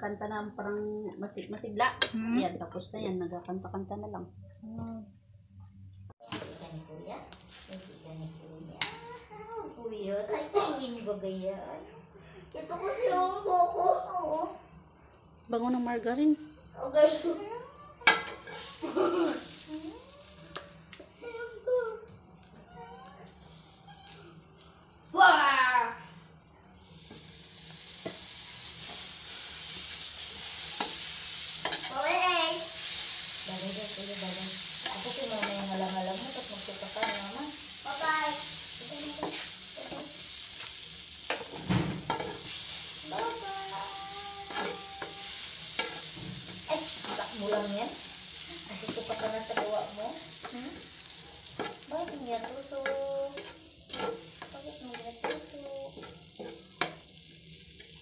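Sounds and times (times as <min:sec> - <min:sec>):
margarine sizzling in wok: 0:06.1 - 0:58.0
spatula scraping pan: 0:18.1 - 0:19.7, 0:27.0 - 0:58.0
spatula knocking pan: 0:51.5 - 0:57.1.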